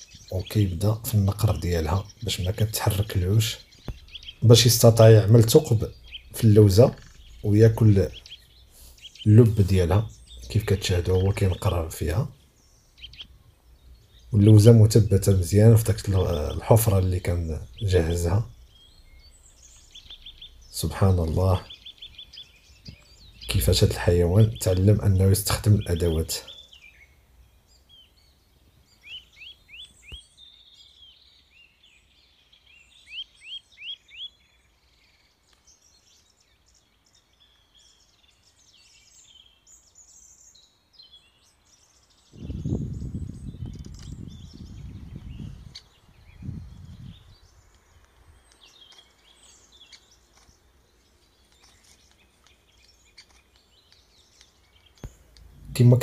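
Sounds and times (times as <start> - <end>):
woodpecker pecking: 0.0 - 12.3, 12.9 - 25.2, 47.5 - 56.0
birds chirping: 0.0 - 56.0
loud low rumble: 55.4 - 56.0.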